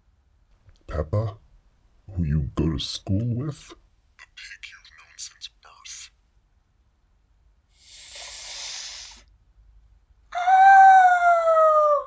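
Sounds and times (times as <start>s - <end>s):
breathy hiss: 7.7s - 9.4s
cartoon girl wailing: 10.3s - 12.0s.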